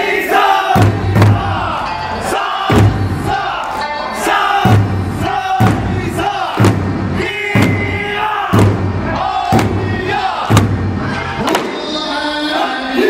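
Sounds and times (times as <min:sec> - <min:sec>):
dancers shouting and chanting: 0:00.0 - 0:13.0
large barrel drums struck: 0:00.8 - 0:01.8, 0:02.7 - 0:03.4, 0:04.6 - 0:11.7.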